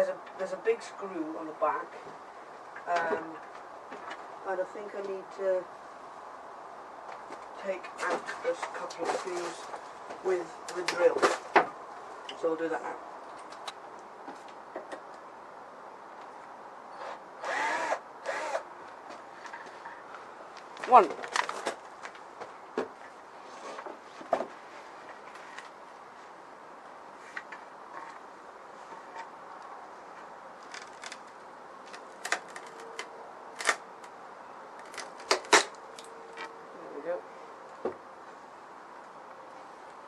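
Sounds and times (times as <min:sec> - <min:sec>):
cordless drill motor whine: 0:17.0 - 0:18.7.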